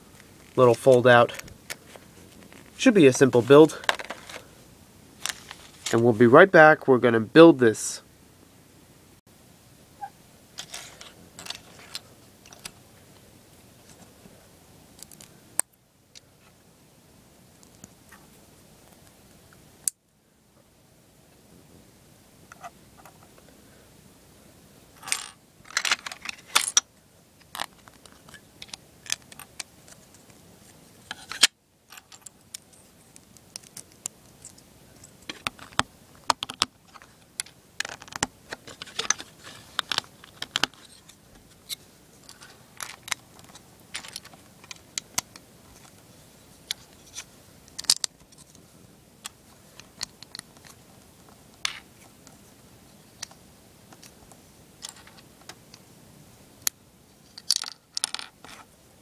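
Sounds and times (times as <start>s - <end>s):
plastic pieces clicking and clattering: 25.0s - 26.8s, 35.2s - 41.1s, 42.3s - 45.4s, 46.7s - 48.5s, 57.3s - 58.6s.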